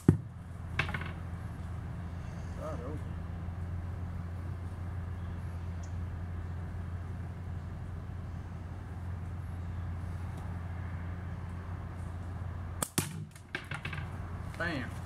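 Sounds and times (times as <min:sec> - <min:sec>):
ammo cracking against wooden target: 0:00.0 - 0:01.2, 0:12.8 - 0:14.2
low background hum: 0:00.0 - 0:15.0.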